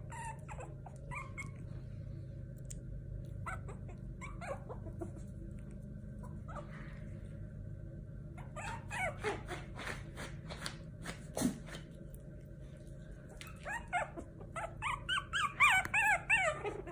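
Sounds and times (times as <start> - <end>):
puppies yipping: 0.0 - 1.9, 3.4 - 5.4, 6.2 - 7.0, 8.4 - 9.9, 13.3 - 16.9
steady low hum: 0.0 - 16.9.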